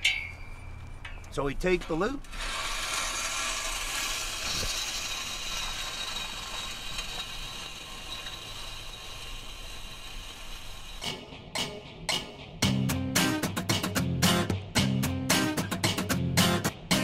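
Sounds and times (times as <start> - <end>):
tool scraping crushed shell: 2.3 - 11.0.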